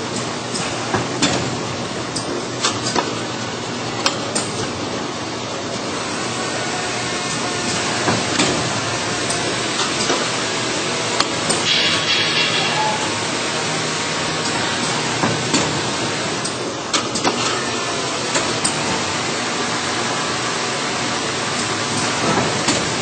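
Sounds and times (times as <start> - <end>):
filling machine mechanical din: 0.0 - 23.0
sharp mechanical clicks and knocks: 16.4 - 17.6.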